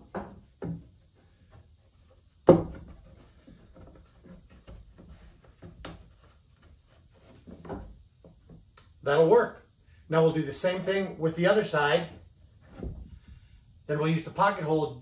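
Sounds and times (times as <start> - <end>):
board knocking on wooden barrel: 2.4 - 3.1.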